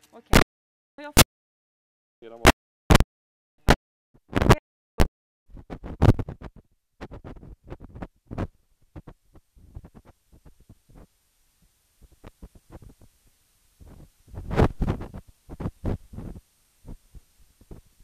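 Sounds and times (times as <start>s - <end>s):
scratchy crackles and thumps: 2.4s - 11.1s, 12.0s - 13.2s, 13.8s - 18.0s.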